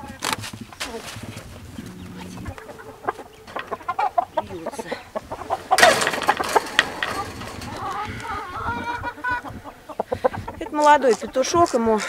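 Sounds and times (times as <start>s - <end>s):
chickens clucking: 0.0s - 12.0s
loud scuffling flurry: 5.2s - 9.1s.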